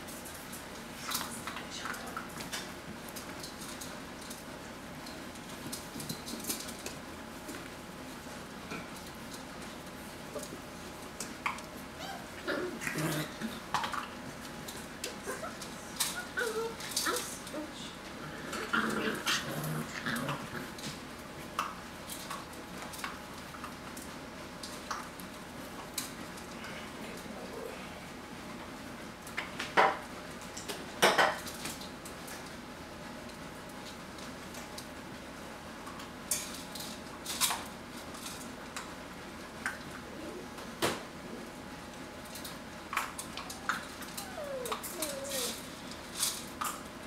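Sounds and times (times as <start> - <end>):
puppy growling whine: 12.0 - 13.6, 15.2 - 20.8, 39.9 - 40.6, 43.0 - 45.9
light clicks and knocks of toys: 42.2 - 46.9.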